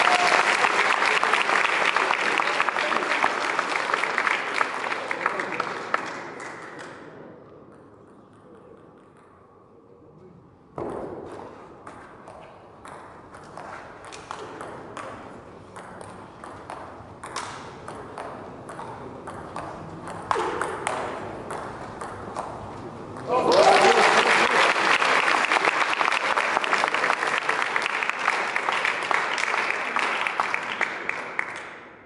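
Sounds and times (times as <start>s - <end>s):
table tennis ball hits and bounces: 7.7s - 9.5s, 10.7s - 23.3s.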